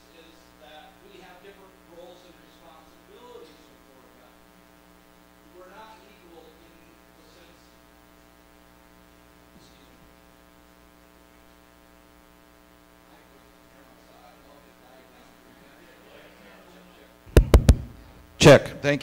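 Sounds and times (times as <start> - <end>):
electrical mains hum: 0.0 - 19.0
taps on a microphone: 17.3 - 18.1.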